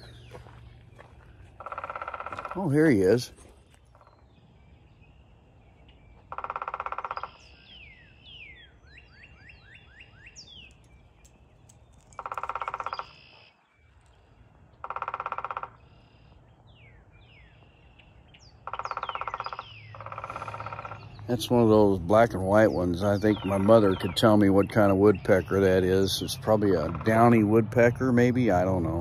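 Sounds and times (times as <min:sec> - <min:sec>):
faint bird calls: 0:00.0 - 0:27.5
woodpecker drumming on wood: 0:01.6 - 0:02.9, 0:06.2 - 0:07.5, 0:12.0 - 0:13.4, 0:14.8 - 0:15.8, 0:18.6 - 0:21.4, 0:26.6 - 0:27.6.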